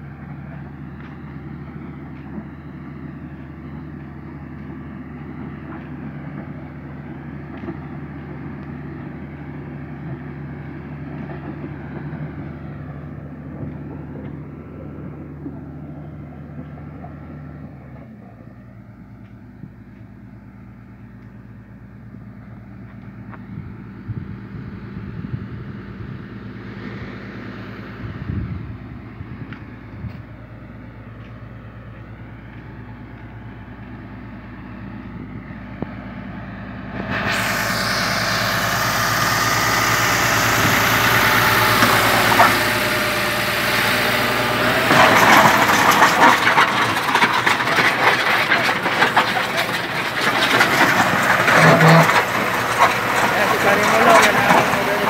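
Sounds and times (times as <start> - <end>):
diesel engine humming: 0.0 - 55.0
loud rushing noise: 36.9 - 55.0.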